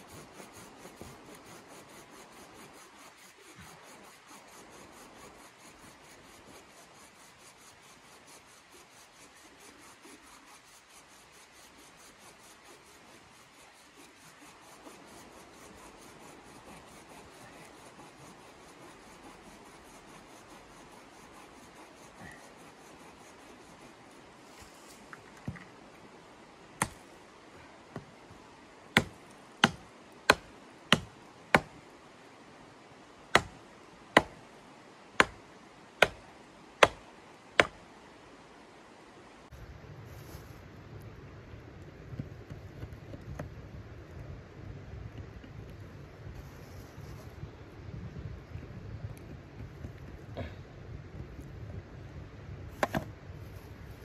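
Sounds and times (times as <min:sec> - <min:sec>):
blade rasping on wood: 0:00.0 - 0:24.3
hatchet striking wood: 0:26.8 - 0:27.0, 0:29.0 - 0:31.8, 0:33.3 - 0:33.6, 0:34.2 - 0:34.4, 0:35.2 - 0:35.4, 0:36.0 - 0:36.2, 0:36.8 - 0:37.0, 0:37.6 - 0:37.8.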